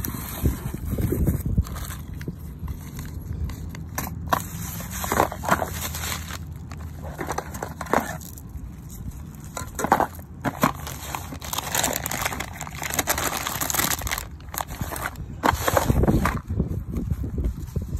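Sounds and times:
packaging crinkling and rustling: 0.0 - 16.4
bubble wrap crackles and clicks: 5.2 - 15.2.

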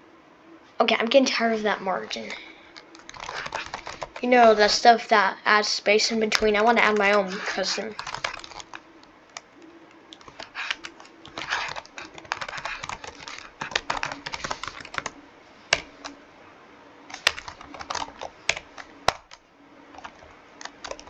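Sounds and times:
computer keyboard typing: 2.8 - 4.3, 6.3 - 16.2, 17.1 - 21.0.

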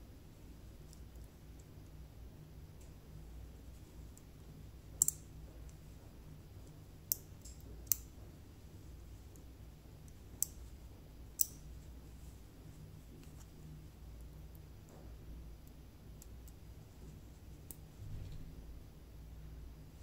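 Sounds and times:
faint low hum: 0.0 - 20.0.

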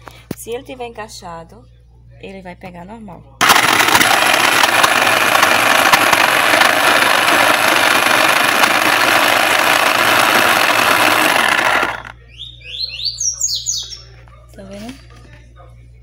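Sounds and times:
food processor motor chopping: 3.4 - 12.1.

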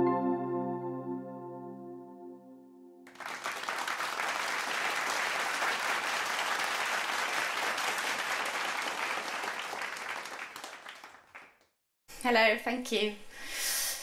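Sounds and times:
audience applauding: 3.1 - 11.7.

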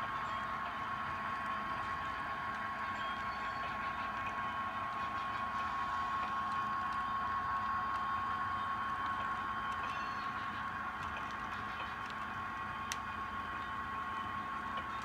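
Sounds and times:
constant high hum: 0.0 - 15.0
model train wheels rolling: 0.0 - 15.0.

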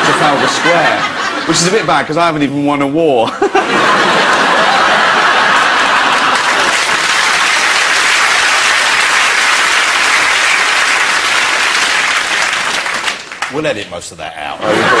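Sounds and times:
audience applauding: 3.9 - 13.9.

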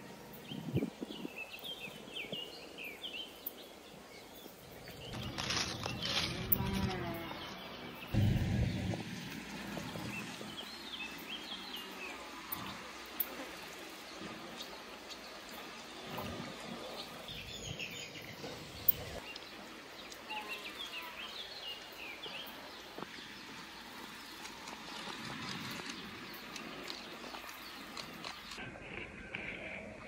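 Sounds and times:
animals rustling and nibbling: 5.0 - 7.5, 23.0 - 29.8
small birds chirping: 9.7 - 29.7.

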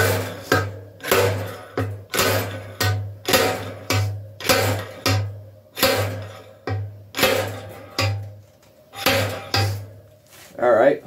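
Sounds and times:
slide hammer knocking on metal: 9.0 - 9.9.

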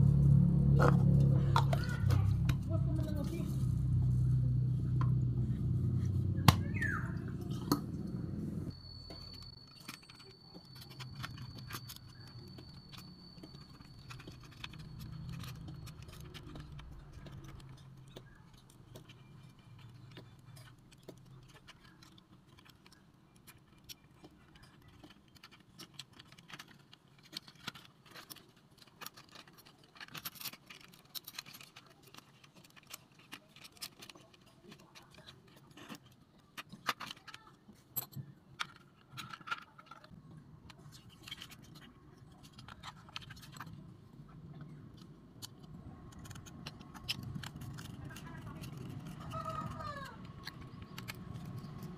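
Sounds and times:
low rumble: 0.0 - 8.8
fingers tapping plastic parts: 9.2 - 43.9.

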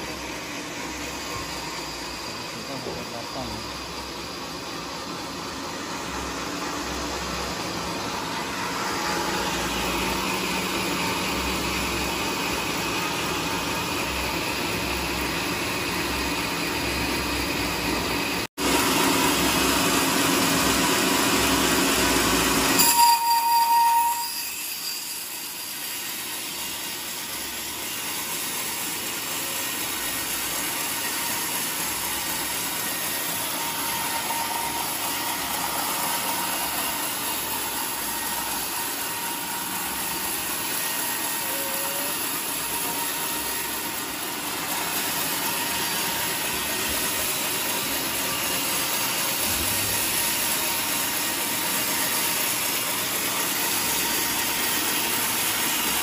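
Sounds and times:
sawmill machinery running: 0.0 - 56.0
high-pitched squeal: 22.6 - 26.2, 30.4 - 52.7.

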